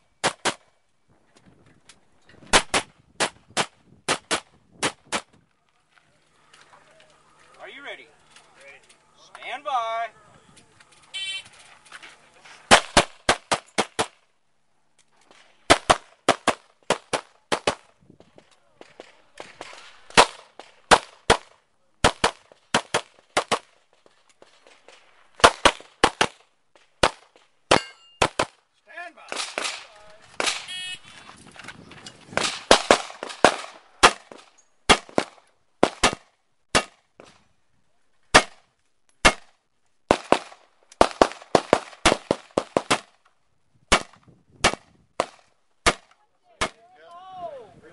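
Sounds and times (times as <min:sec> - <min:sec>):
pistol shots: 0:12.7 - 0:14.2, 0:15.6 - 0:17.9, 0:19.6 - 0:23.7, 0:25.4 - 0:26.4, 0:27.0 - 0:28.6, 0:29.3 - 0:30.8, 0:32.4 - 0:37.0, 0:38.3 - 0:38.6, 0:39.2 - 0:43.1, 0:43.9 - 0:46.8.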